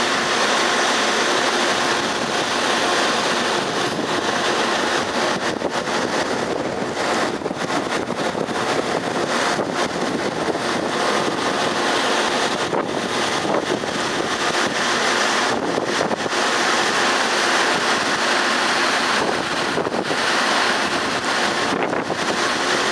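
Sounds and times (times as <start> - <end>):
wind blowing across microphone: 1.6 - 22.9.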